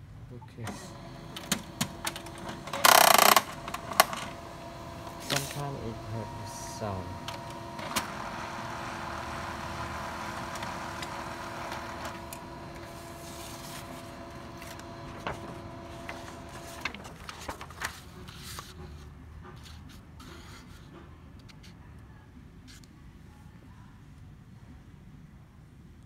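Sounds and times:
laser printer humming: 0:00.6 - 0:17.2.

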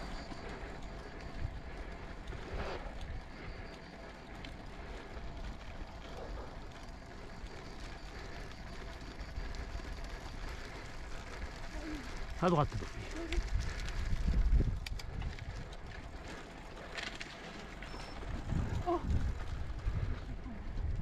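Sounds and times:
bike road rumble: 0:00.0 - 0:21.0
wind on microphone: 0:13.3 - 0:15.8, 0:18.2 - 0:21.0.

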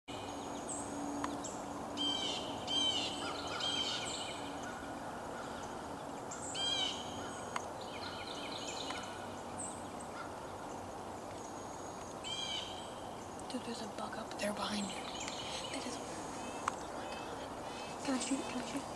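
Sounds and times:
background hiss: 0:00.1 - 0:18.9
songbirds calling: 0:00.1 - 0:18.9
faint clicks: 0:15.1 - 0:15.5, 0:16.6 - 0:16.9.

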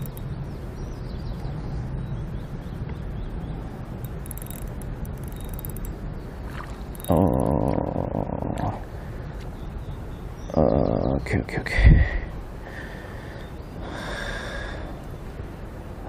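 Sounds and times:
fishing reel cranking: 0:00.0 - 0:00.2, 0:04.0 - 0:05.9, 0:06.9 - 0:07.5.

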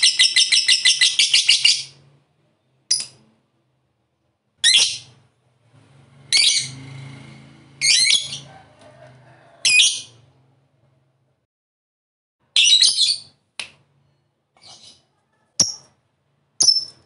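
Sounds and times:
bird chirping: 0:00.0 - 0:03.2, 0:12.6 - 0:13.4, 0:16.6 - 0:17.0.

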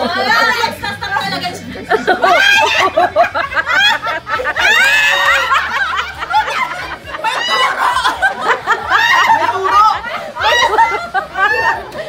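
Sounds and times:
people laughing and shrieking: 0:00.0 - 0:12.0.

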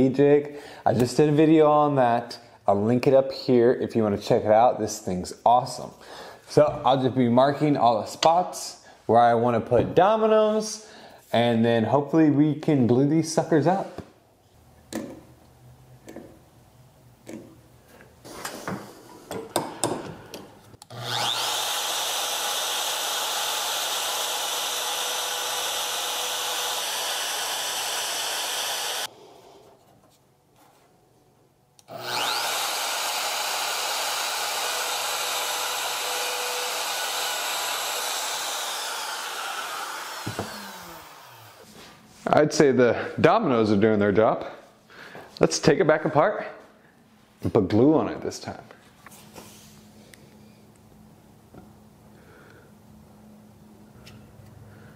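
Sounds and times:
router cutting wood: 0:20.8 - 0:29.1, 0:31.8 - 0:41.7.

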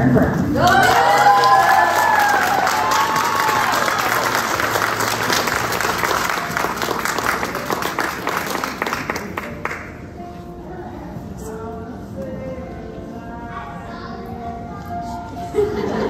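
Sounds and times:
audience clapping and cheering: 0:00.5 - 0:09.9.

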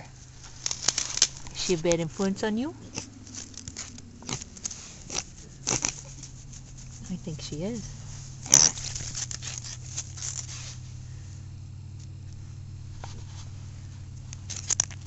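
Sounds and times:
steady low hum: 0:00.0 - 0:15.0
hand rubbing bristly coat: 0:00.3 - 0:10.9.

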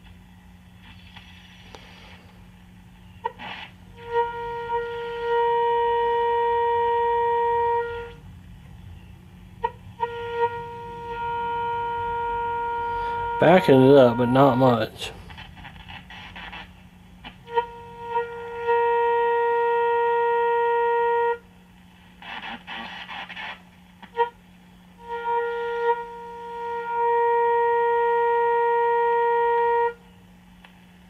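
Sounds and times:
shortwave static: 0:00.0 - 0:04.5, 0:10.6 - 0:18.0, 0:21.6 - 0:24.1
low hum: 0:00.0 - 0:31.0
radio speaker steady tone: 0:12.6 - 0:16.8
radio squeals: 0:12.9 - 0:16.8.

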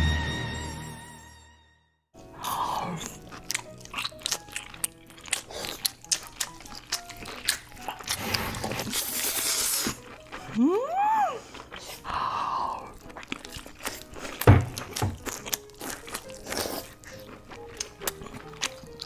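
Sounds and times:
chewing: 0:02.4 - 0:19.0
crab shell crunching: 0:02.5 - 0:10.6, 0:12.8 - 0:19.0.

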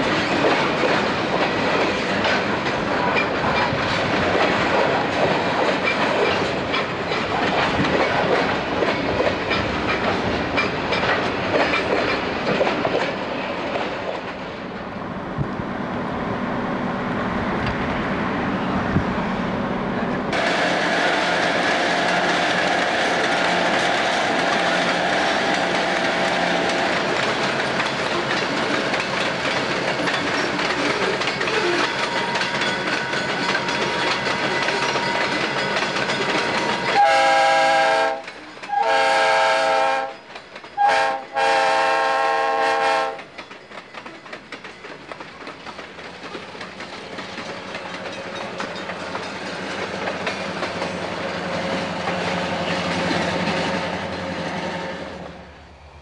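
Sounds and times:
diesel locomotive rumbling: 0:00.0 - 0:56.0
freight cars rumbling on rails: 0:00.0 - 0:56.0
locomotive air horn: 0:37.0 - 0:40.2, 0:40.8 - 0:43.3.

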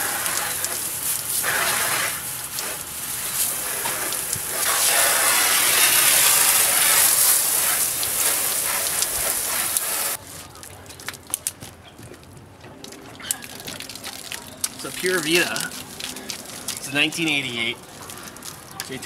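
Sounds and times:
pressure washer spray hissing: 0:00.0 - 0:10.2.

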